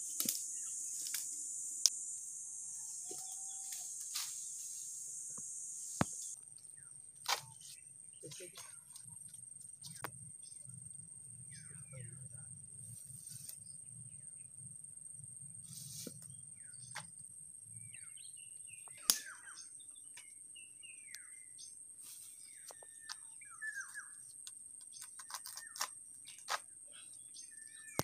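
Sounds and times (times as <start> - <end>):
high-pitched insect drone: 0.0 - 6.4
birds chirping: 2.8 - 12.5, 17.8 - 28.0.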